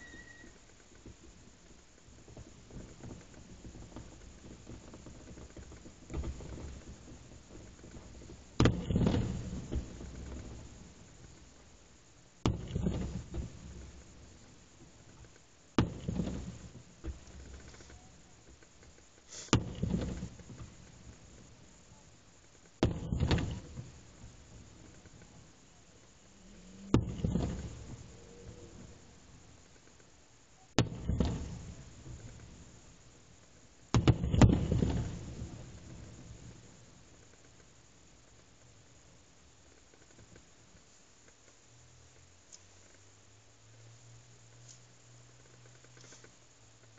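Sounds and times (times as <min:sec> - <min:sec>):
low rolling rumble: 0:00.0 - 0:39.7
fireworks bangs with echo: 0:22.8 - 0:23.9, 0:30.8 - 0:32.6, 0:33.9 - 0:36.5
firework shells bursting: 0:33.9 - 0:36.6.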